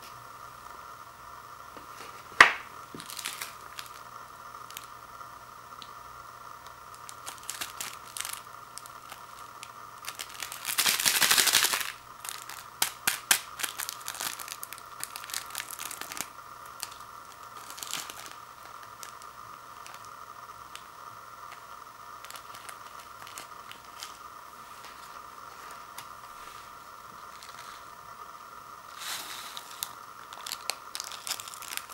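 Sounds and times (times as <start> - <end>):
plastic packet tearing: 2.4 - 4.1, 4.7 - 4.9, 6.6 - 26.4, 27.1 - 28.0, 28.9 - 31.9
plastic packet crinkling: 2.4 - 5.0, 6.6 - 28.1, 28.8 - 31.9.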